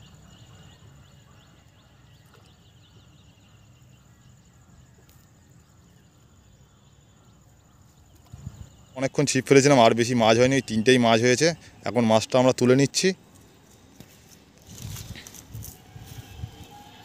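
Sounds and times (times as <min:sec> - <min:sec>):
high-pitched whine: 0:15.3 - 0:17.0.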